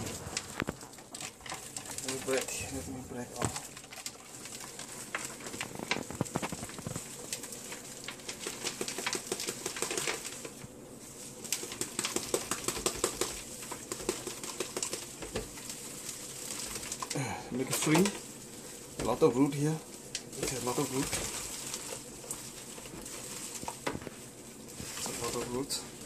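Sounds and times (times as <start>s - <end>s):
soil dropping into plastic basin: 0.0s - 7.1s
leaves rustling: 0.0s - 26.0s
root ball crackling: 0.0s - 26.0s.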